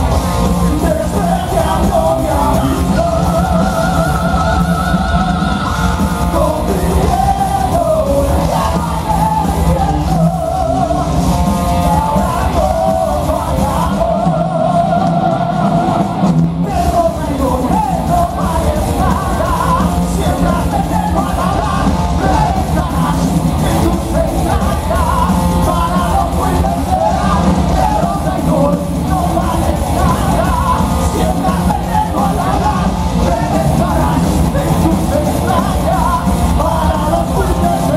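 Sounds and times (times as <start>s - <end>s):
live heavy metal band: 0.0s - 37.9s
singers singing and shouting: 0.0s - 37.9s.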